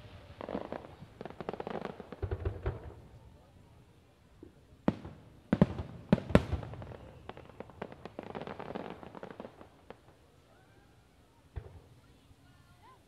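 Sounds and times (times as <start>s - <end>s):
firework bangs: 0.0s - 3.2s, 4.9s - 10.1s
firework crackling pops: 0.0s - 3.4s, 4.4s - 10.7s.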